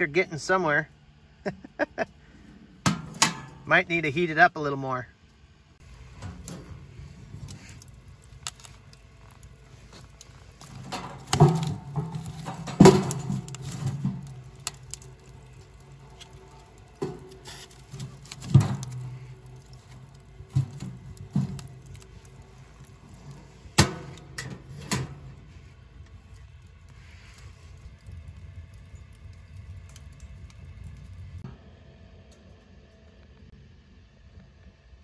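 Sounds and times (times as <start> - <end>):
knocks and clunks at wood stove: 2.8 - 3.7, 5.8 - 27.8.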